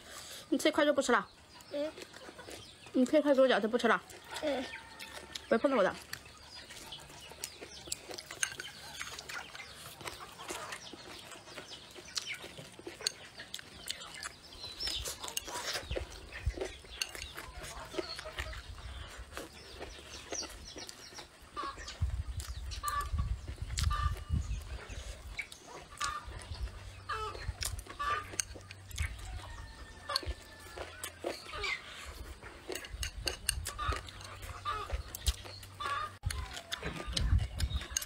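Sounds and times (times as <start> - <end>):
chickens clucking: 0.0 - 38.0
small eating clicks: 0.1 - 38.0
close-up chewing: 1.4 - 38.0.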